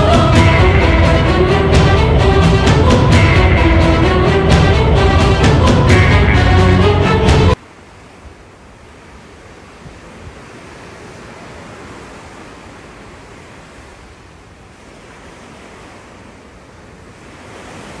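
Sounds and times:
churning sea water rushing: 0:00.0 - 0:18.0
wind: 0:00.0 - 0:18.0.

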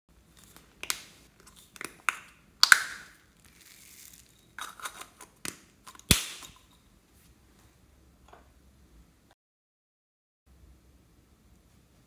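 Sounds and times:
plastic cup crinkling: 0:00.3 - 0:06.8.

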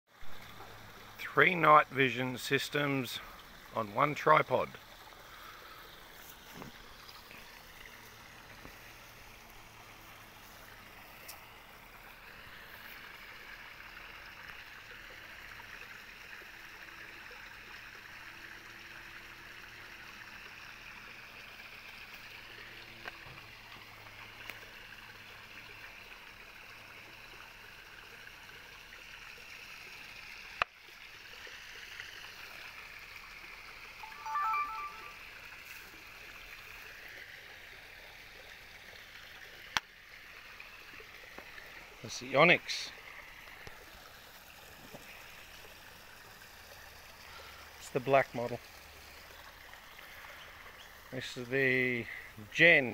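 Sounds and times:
running water hiss: 0:00.1 - 0:52.9.

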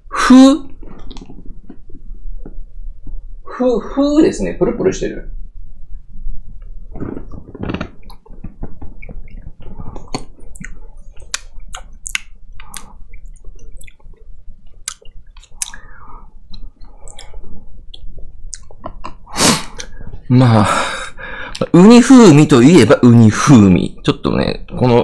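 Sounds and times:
person chewing wetly: 0:08.0 - 0:15.9.

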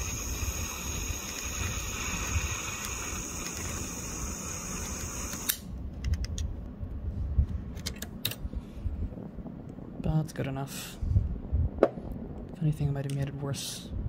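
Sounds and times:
butane torch hissing: 0:00.0 - 0:05.6.

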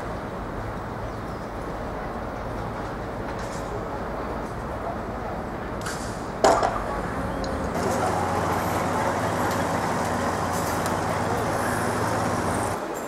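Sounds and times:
road traffic noise: 0:00.0 - 0:13.0
low engine hum: 0:06.3 - 0:12.8.

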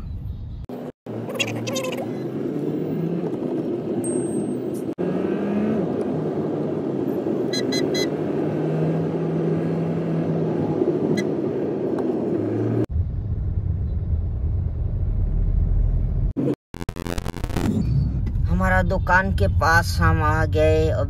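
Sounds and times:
car engine and tyre hum: 0:00.0 - 0:16.5.

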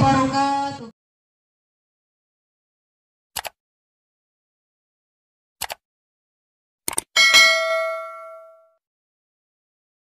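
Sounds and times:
short clicks: 0:03.3 - 0:03.6, 0:05.6 - 0:05.8
bell-like chime ringing: 0:07.2 - 0:08.8.

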